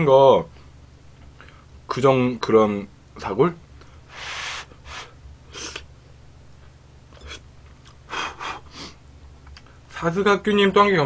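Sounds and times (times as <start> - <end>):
man blowing puffs of breath: 4.0 - 5.9, 8.1 - 9.0.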